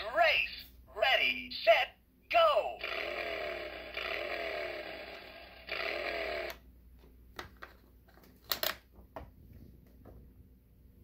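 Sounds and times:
toy electronic engine sound: 2.8 - 6.6.

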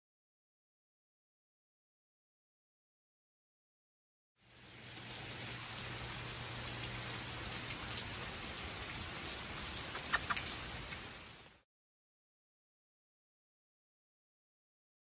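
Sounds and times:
steady rain hissing: 4.4 - 11.7.

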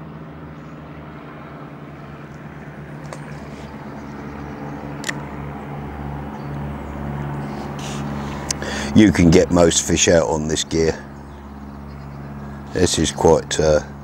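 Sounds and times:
distant vehicle engine drone: 0.0 - 14.0
sharp click: 5.0 - 5.3.

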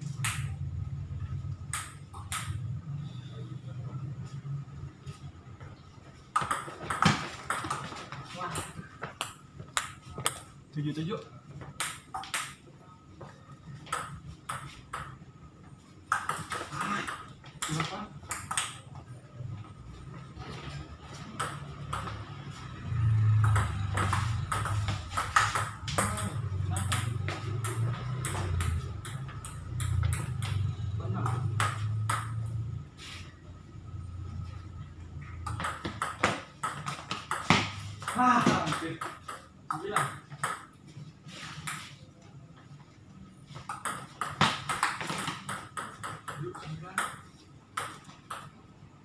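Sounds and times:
low steady hum: 0.0 - 38.2
table tennis ball hits: 0.1 - 0.6, 1.6 - 2.7, 6.3 - 10.6, 11.6 - 12.6, 13.8 - 15.2, 16.0 - 19.0, 21.3 - 32.7, 35.4 - 40.8, 43.6 - 48.6.

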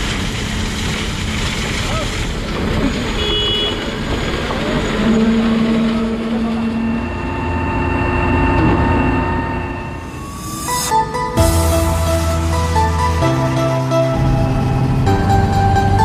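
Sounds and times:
concrete pump machinery noise: 0.0 - 10.2
held whining tones: 4.5 - 16.0.

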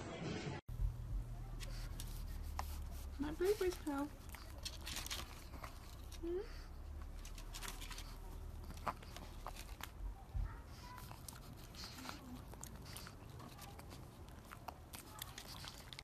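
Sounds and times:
steady low rumble: 0.7 - 7.3
dog licking and nibbling: 7.2 - 16.0.

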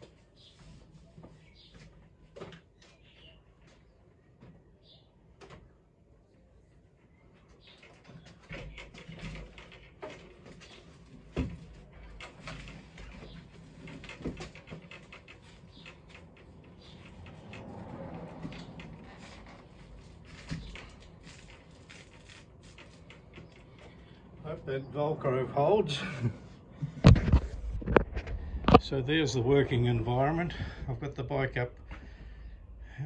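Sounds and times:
handling clicks and rustles: 7.6 - 24.4.

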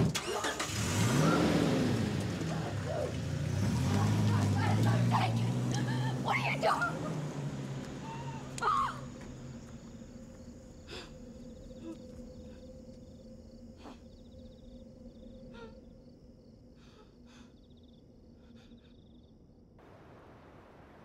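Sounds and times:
crickets chirping: 0.5 - 21.0
woman crying out: 8.0 - 9.0.

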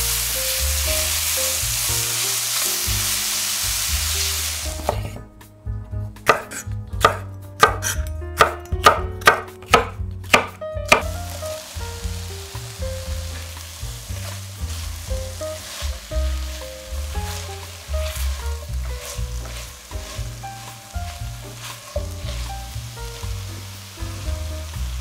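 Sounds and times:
vegetables sizzling in a pan: 0.0 - 5.2, 10.3 - 25.0
knife chopping on wooden board: 4.8 - 5.2, 6.2 - 11.1.

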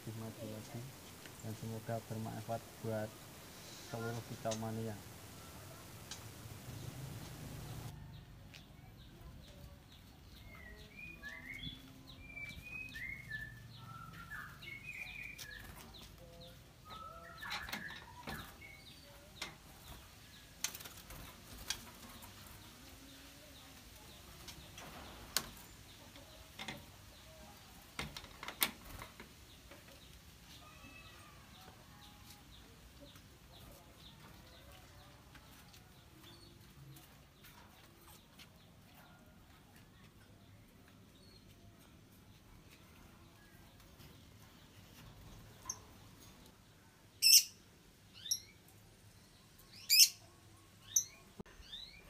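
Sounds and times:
bird chirps: 10.2 - 19.2, 47.1 - 48.6, 49.6 - 52.0.

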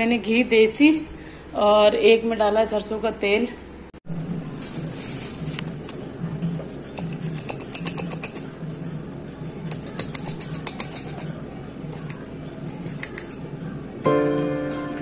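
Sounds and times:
knife scraping ginger peel: 6.9 - 8.9, 9.6 - 13.5.

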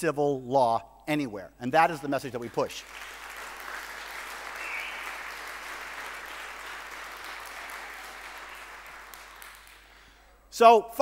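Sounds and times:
audience applauding: 2.3 - 10.2.

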